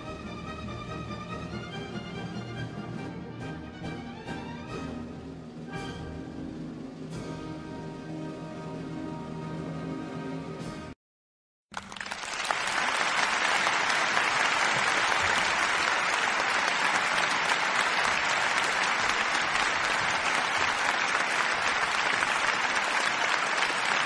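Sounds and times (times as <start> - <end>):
audience applause: 11.7 - 24.0.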